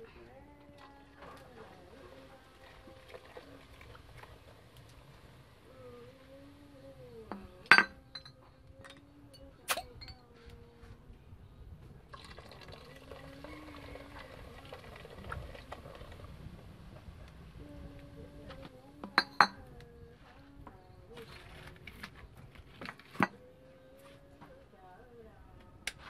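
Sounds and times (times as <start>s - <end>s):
cola pouring into pot: 0.6s - 6.3s, 12.1s - 17.1s
glass bottle clinks: 7.7s - 8.4s, 9.7s - 10.2s, 19.1s - 19.6s.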